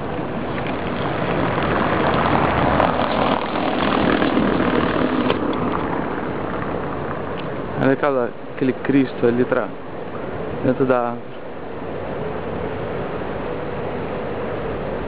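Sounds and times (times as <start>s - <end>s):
cars rushing on road: 0.0s - 10.6s.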